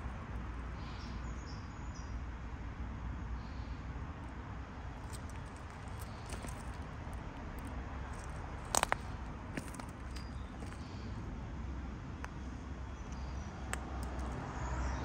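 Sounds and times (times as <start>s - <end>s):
low outdoor rumble: 3.0s - 15.0s
footsteps on acorns and dry leaves: 5.0s - 11.0s.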